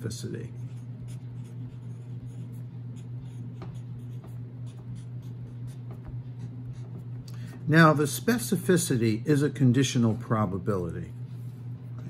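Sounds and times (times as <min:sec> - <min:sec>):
steady low hum: 0:00.0 - 0:12.0
pen scratching on paper: 0:00.5 - 0:07.1.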